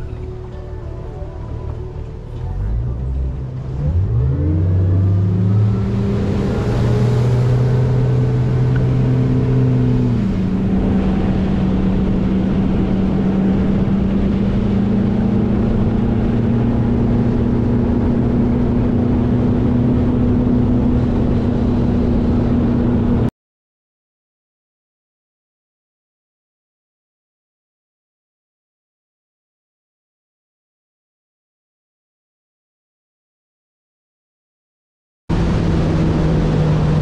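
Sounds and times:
outboard engines accelerating: 0:00.0 - 0:23.3, 0:35.3 - 0:37.0.

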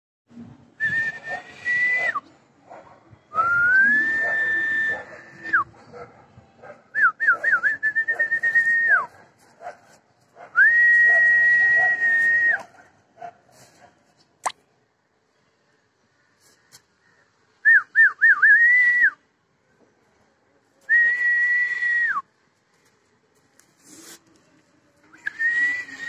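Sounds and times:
person whistling long notes: 0:00.8 - 0:02.2, 0:03.3 - 0:05.6, 0:10.6 - 0:12.6, 0:20.9 - 0:22.2, 0:25.2 - 0:26.0.

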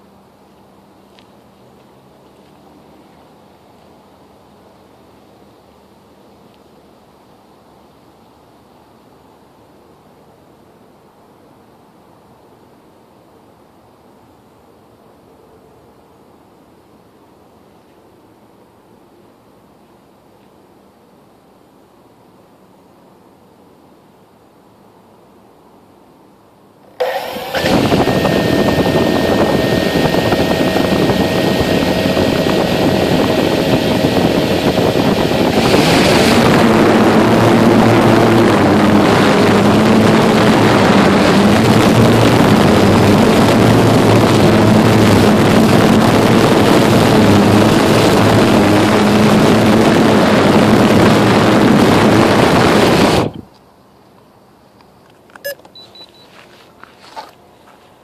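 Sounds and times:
quadcopter motors whining: 0:27.0 - 0:53.4.

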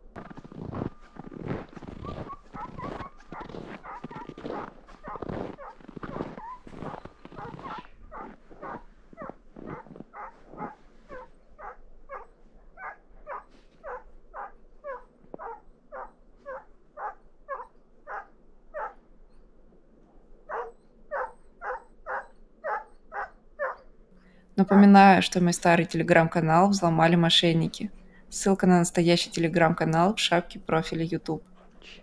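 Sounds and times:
dog yelping barks: 0:02.0 - 0:19.0, 0:20.5 - 0:23.8.

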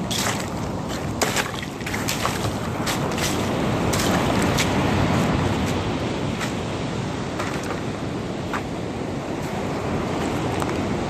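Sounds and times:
waves washing on shore: 0:00.0 - 0:11.0
wind on microphone: 0:00.0 - 0:11.0.

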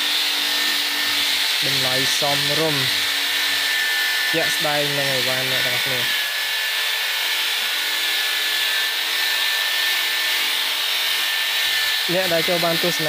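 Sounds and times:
workshop machinery hissing: 0:00.0 - 0:06.3, 0:11.6 - 0:13.0
high machine whine: 0:00.0 - 0:13.0.

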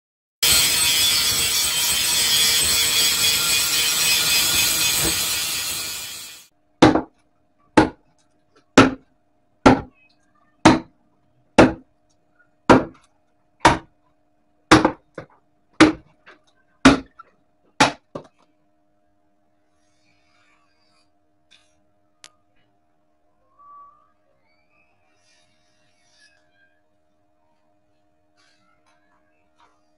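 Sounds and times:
sharp hammer blows: 0:00.4 - 0:06.5.

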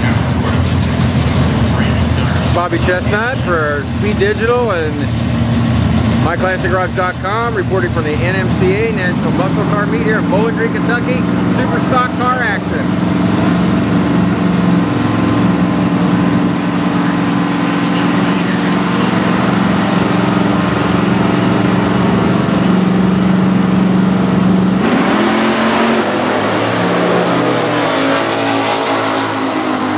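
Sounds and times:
drag car engine revving and accelerating: 0:00.0 - 0:29.9.

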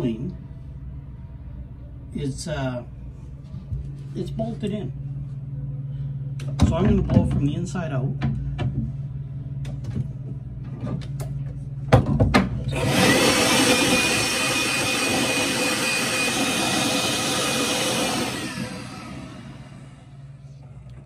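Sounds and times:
electric blower running: 0:12.6 - 0:20.5.

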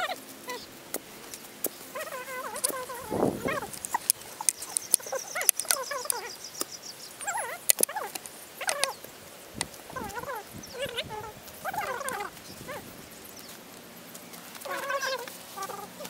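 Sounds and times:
animal whining: 0:00.0 - 0:00.7, 0:01.9 - 0:06.4, 0:07.2 - 0:09.0, 0:09.9 - 0:13.0, 0:14.6 - 0:16.0.

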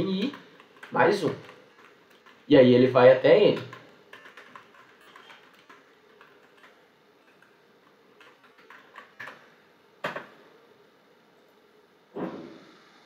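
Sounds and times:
keyboard typing: 0:00.0 - 0:02.5, 0:03.5 - 0:07.6.

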